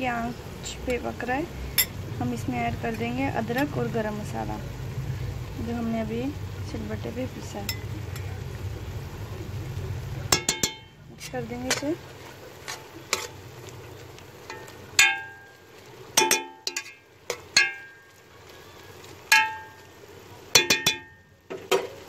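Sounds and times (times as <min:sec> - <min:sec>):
spoon clinking against pot: 0:01.7 - 0:02.0, 0:07.7 - 0:08.2, 0:10.3 - 0:10.9, 0:16.2 - 0:18.0, 0:20.6 - 0:21.2
spoon stirring food in pot: 0:01.7 - 0:03.8, 0:07.6 - 0:08.3, 0:10.3 - 0:18.3.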